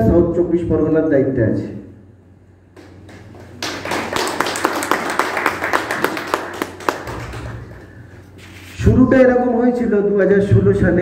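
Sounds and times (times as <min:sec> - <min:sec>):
small audience clapping: 0:02.8 - 0:08.2.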